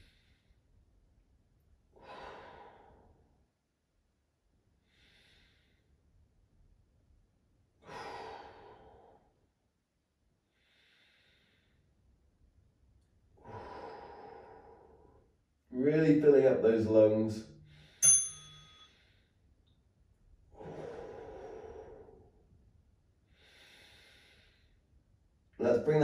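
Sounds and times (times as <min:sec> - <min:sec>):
person breathing deeply: 0:01.9 - 0:03.4, 0:04.8 - 0:05.9, 0:07.8 - 0:09.4, 0:10.5 - 0:11.9, 0:13.4 - 0:15.4, 0:20.5 - 0:22.5, 0:23.3 - 0:24.9.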